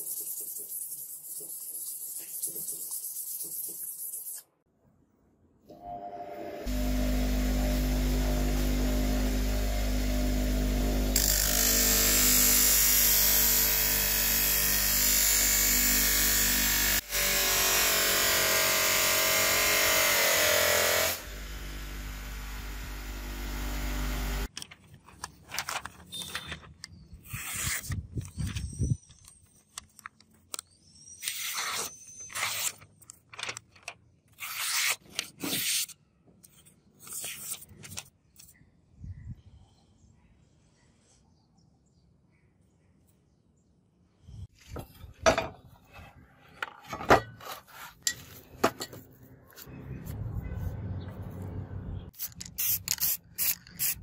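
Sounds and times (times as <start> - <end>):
bench grinder motor running: 6.7 - 24.5
blade slicing through paper: 34.3 - 36.0.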